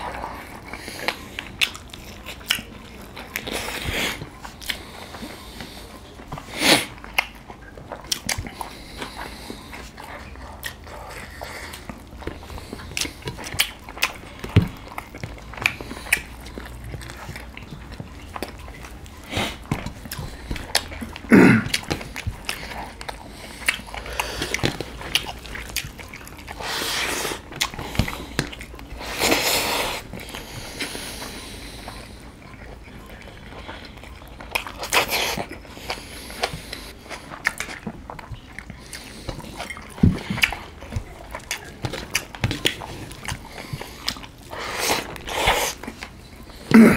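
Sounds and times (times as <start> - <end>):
wet chewing and lip smacking: 0.0 - 46.9
person grunting: 21.3 - 21.7.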